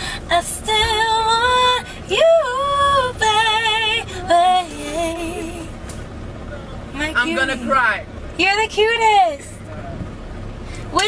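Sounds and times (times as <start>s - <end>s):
woman singing unaccompanied: 0.2s - 5.8s.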